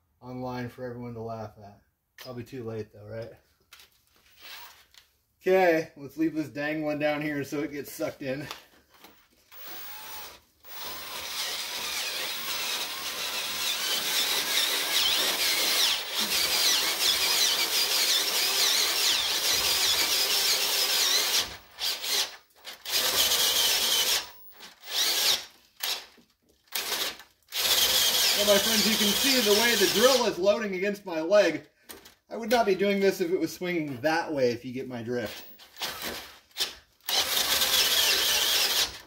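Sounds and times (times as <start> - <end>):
drill bit screeching into metal: 27.6 - 30.2.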